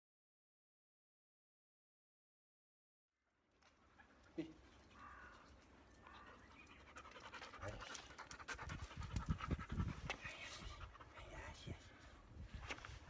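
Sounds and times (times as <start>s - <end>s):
dog panting: 6.2s - 11.9s.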